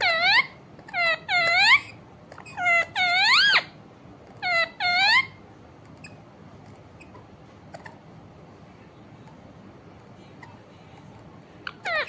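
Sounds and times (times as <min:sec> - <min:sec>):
parakeet whistled calls: 0:00.0 - 0:03.8, 0:04.4 - 0:05.4, 0:11.6 - 0:12.0.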